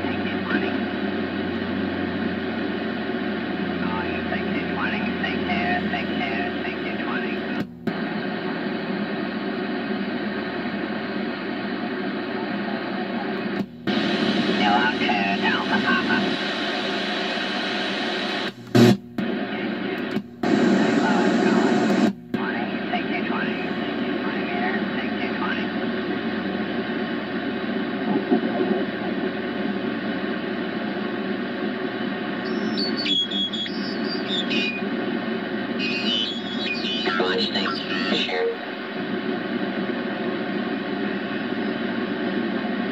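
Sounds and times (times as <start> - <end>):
warbling off-tune radio voice: 0.0 - 1.0, 3.8 - 7.6, 12.2 - 13.6, 14.4 - 17.0, 19.4 - 26.4, 35.7 - 38.7
radio static: 0.0 - 42.9.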